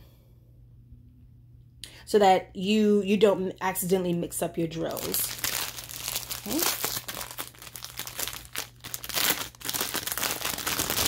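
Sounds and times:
plastic packaging crinkling: 0:04.8 - 0:11.0.

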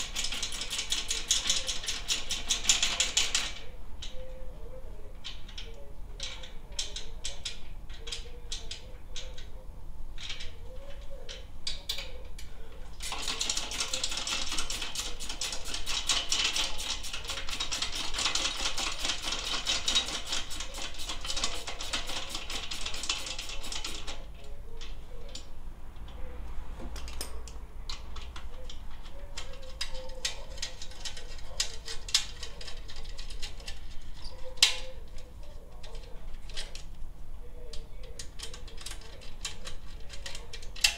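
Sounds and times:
ratchet wrench clicking: 0:00.0 - 0:03.3, 0:13.0 - 0:24.2.

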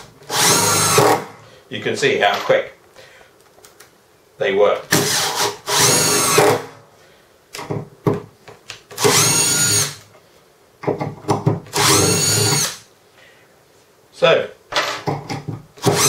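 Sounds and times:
impact driver driving screws: 0:00.3 - 0:01.3, 0:04.9 - 0:06.7, 0:09.0 - 0:10.0, 0:11.7 - 0:12.8, 0:15.8 - 0:16.0.

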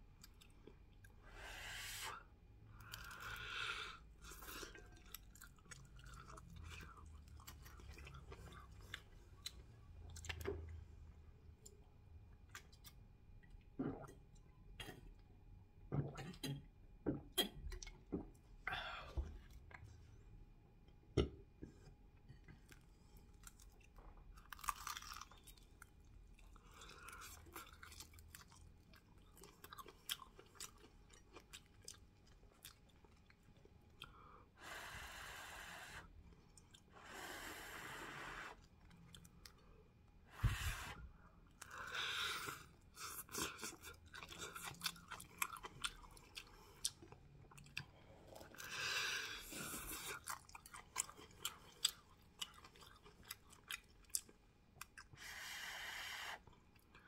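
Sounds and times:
crunching crispy spring roll: 0:23.4 - 0:28.6.

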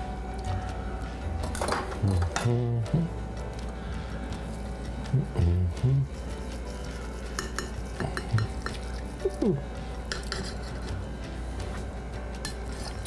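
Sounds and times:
steady low hum: 0:00.0 - 0:13.0
utensil scraping and clinking: 0:06.1 - 0:09.4, 0:10.0 - 0:11.8, 0:12.4 - 0:13.0.

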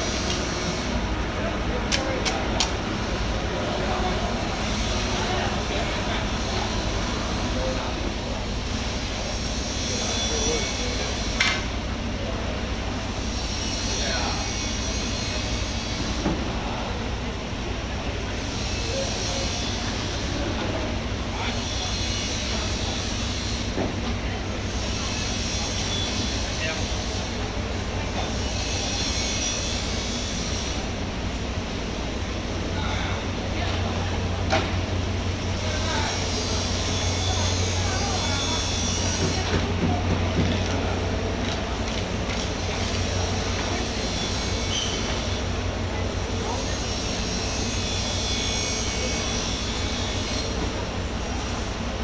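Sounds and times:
faint voices: 0:00.0 - 0:52.0
low rumble and hiss of machinery: 0:00.0 - 0:52.0.

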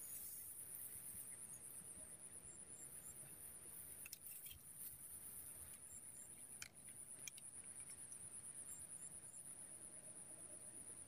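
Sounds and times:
faint clicks: 0:06.4 - 0:08.1.

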